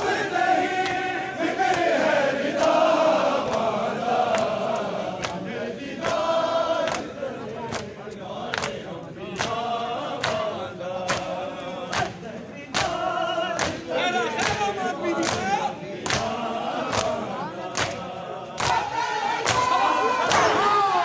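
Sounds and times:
men chanting together: 0.0s - 21.0s
hands slapping chests: 4.3s - 5.4s, 8.5s - 8.8s, 10.2s - 12.2s, 12.8s - 13.0s, 13.6s - 17.2s, 17.8s - 18.0s, 18.6s - 20.6s.

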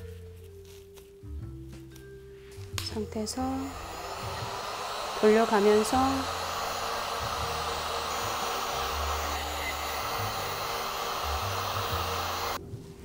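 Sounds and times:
heat gun blowing air: 2.8s - 12.6s.

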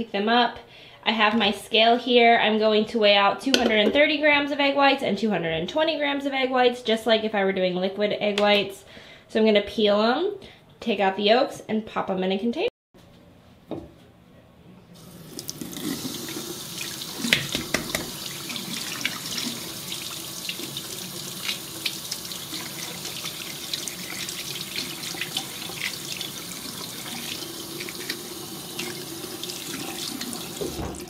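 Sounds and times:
tap water splashing into basin: 15.3s - 31.0s.

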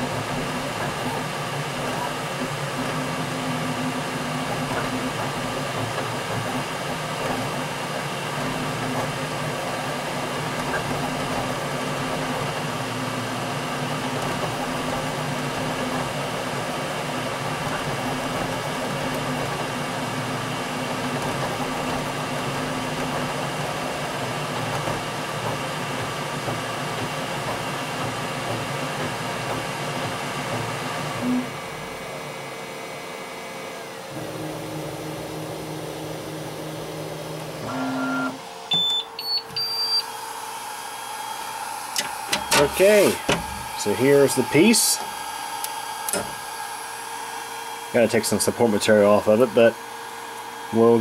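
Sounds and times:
low hum of moving print head: 0.0s - 51.0s
printer fans and motors whirring: 0.0s - 51.0s.

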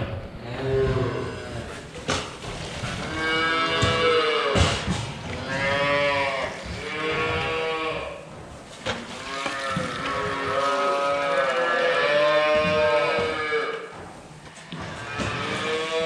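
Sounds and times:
calves bawling: 0.0s - 16.0s.

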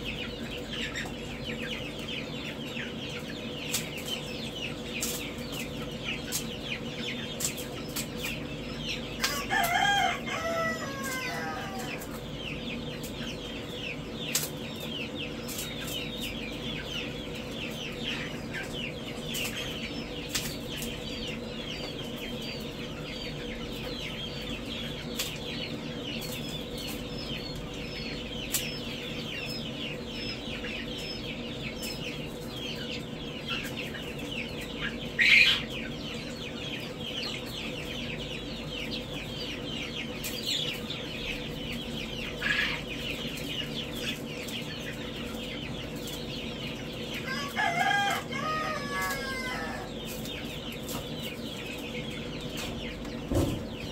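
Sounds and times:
chicks peeping: 0.0s - 53.9s
rooster crowing: 9.2s - 12.0s, 47.2s - 49.9s.

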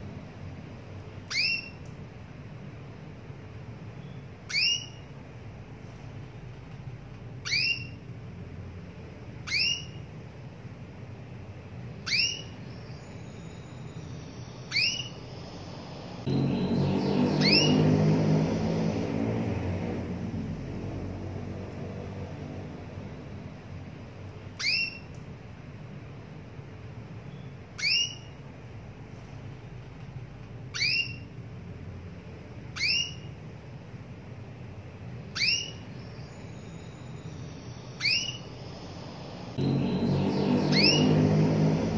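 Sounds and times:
canary whistled call: 1.3s - 1.8s, 4.0s - 5.0s, 7.4s - 8.0s, 9.5s - 10.0s, 12.0s - 15.4s, 16.6s - 17.9s, 24.6s - 25.1s, 27.3s - 28.4s, 30.7s - 31.3s, 32.8s - 33.3s, 35.3s - 38.9s, 40.0s - 41.2s.

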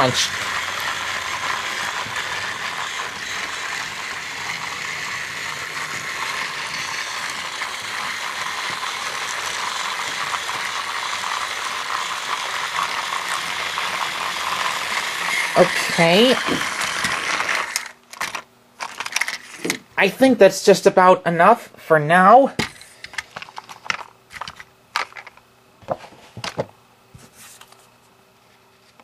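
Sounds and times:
toy train motor whirring and rattling: 0.0s - 19.8s, 22.6s - 25.4s.

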